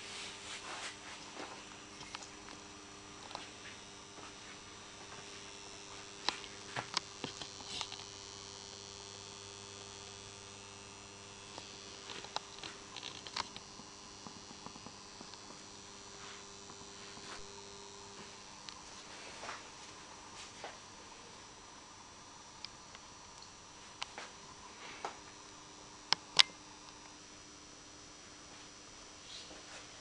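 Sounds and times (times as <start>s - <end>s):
electrical mains hum: 0.0s - 30.0s
small clicks and taps: 6.2s - 8.1s, 11.5s - 15.6s.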